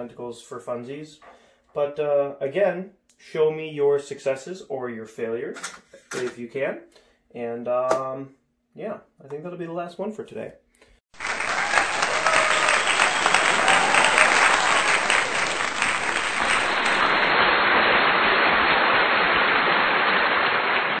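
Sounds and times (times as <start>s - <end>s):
crowd applauding: 11.1s - 21.0s.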